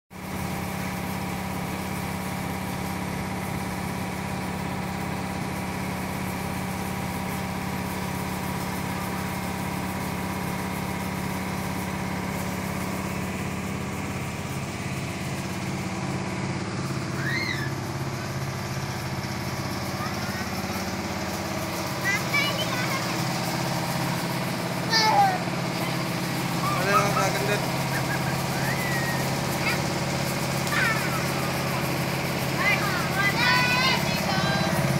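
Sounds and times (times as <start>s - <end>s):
machinery engine humming: 0.2s - 34.9s
steady higher machine tones: 11.4s - 34.9s.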